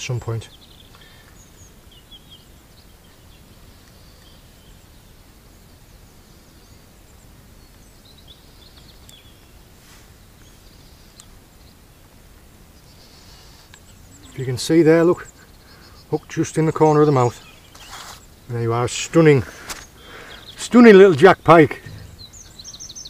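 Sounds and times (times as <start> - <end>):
bird chirps: 0.0 - 9.6, 12.7 - 18.6, 19.4 - 23.0
low background rumble: 21.8 - 23.0.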